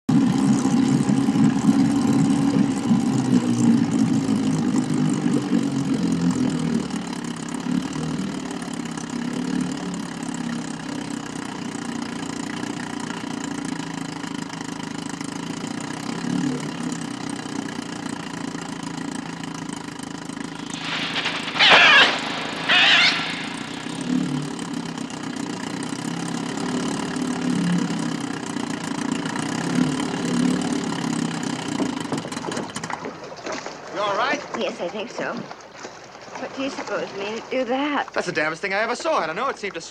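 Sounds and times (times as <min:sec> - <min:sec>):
outboard motor running: 0:00.0 - 0:39.9
short shrill cries: 0:20.7 - 0:24.2.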